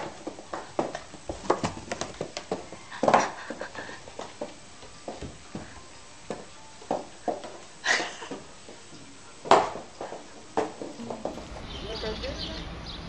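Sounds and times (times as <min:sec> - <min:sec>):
cat scrabbling on tiled floor: 0:00.0 - 0:04.5.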